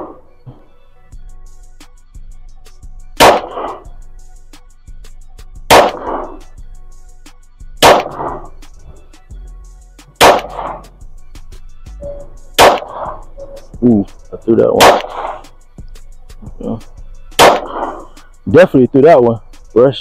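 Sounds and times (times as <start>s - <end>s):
background music: 0.0s - 20.0s
pistol shots with ringing echo: 3.2s - 3.9s, 5.7s - 6.5s, 7.8s - 8.5s, 10.2s - 10.9s, 12.5s - 13.3s, 14.8s - 15.5s, 17.4s - 18.2s.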